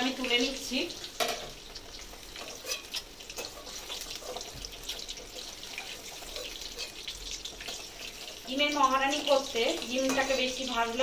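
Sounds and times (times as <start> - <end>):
hot oil sizzling and crackling: 0.0 - 11.0.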